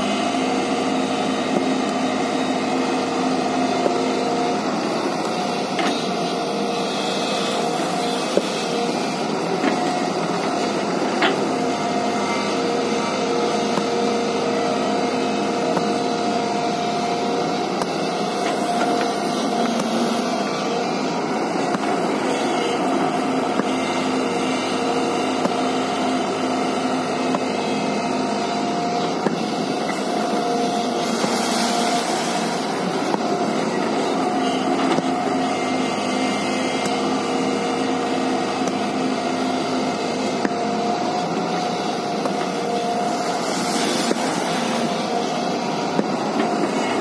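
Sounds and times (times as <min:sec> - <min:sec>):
excavator engine droning: 0:00.0 - 0:47.0
hydraulic hiss: 0:04.7 - 0:11.2, 0:16.5 - 0:23.0, 0:28.5 - 0:33.7, 0:40.6 - 0:47.0.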